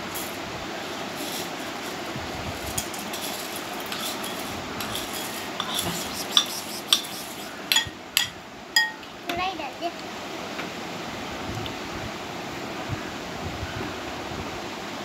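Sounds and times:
dry cornflakes pouring: 0.0s - 6.3s
plastic spoon scraping ceramic bowl: 3.1s - 7.6s.

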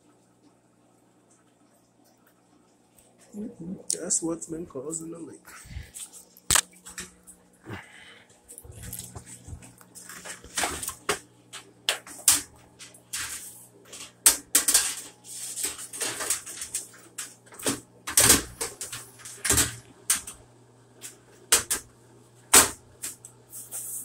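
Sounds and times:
clicks and knocks of parts: 10.5s - 20.4s.

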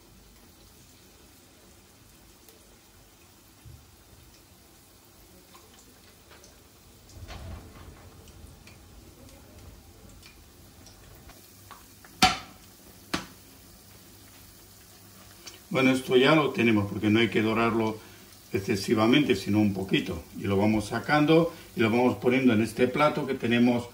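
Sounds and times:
vegetables frying in oil: 0.0s - 23.9s.

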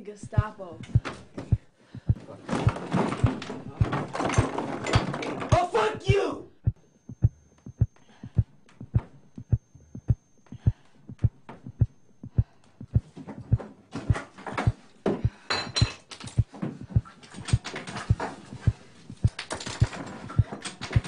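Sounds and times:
low thumping pulse: 0.0s - 4.6s, 5.5s - 15.5s, 16.2s - 20.5s
clattering and scuffling: 2.2s - 5.7s, 13.1s - 21.0s.

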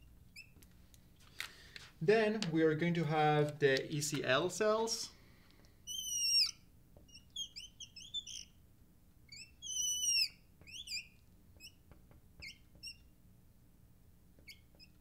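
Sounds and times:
marker squeaking on glass: 0.0s - 0.6s, 5.8s - 8.6s, 9.3s - 13.1s, 14.4s - 15.0s.

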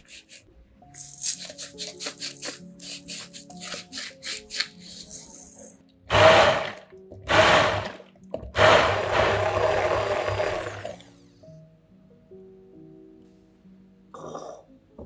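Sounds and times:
immersion blender blending: 6.1s - 8.0s, 8.6s - 11.0s.

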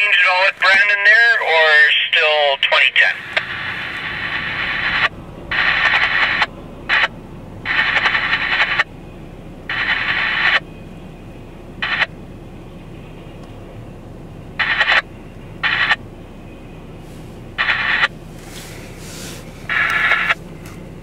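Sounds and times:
freight train rumbling: 0.0s - 21.0s
scanner radio hiss bursts: 9.7s - 10.6s, 17.0s - 20.4s.

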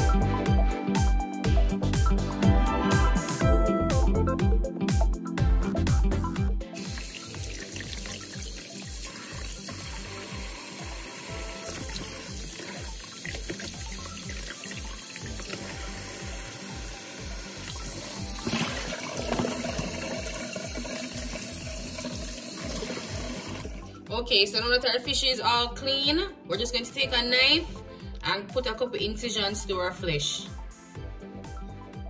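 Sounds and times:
background music with steady beat: 0.0s - 32.0s
water splashing: 6.8s - 16.0s, 17.6s - 23.8s
tap running into plastic basin: 11.7s - 15.7s, 17.6s - 23.8s.

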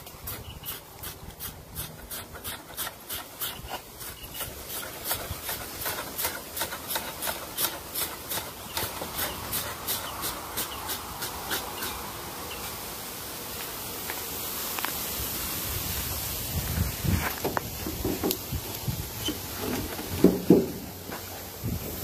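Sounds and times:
blade scraping hide: 0.0s - 12.0s.

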